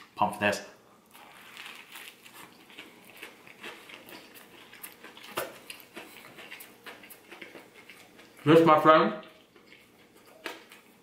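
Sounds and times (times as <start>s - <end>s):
chewing crackles and clicks: 1.1s - 8.5s, 9.2s - 11.0s.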